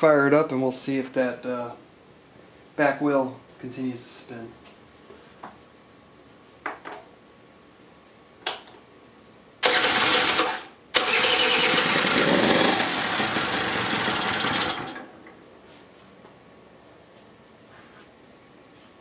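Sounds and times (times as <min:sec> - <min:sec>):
scooter engine starting and running: 0:09.6 - 0:15.2.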